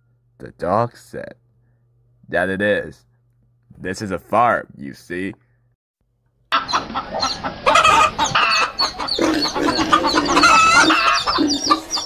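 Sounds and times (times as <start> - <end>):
hens clucking: 6.5 - 12.0.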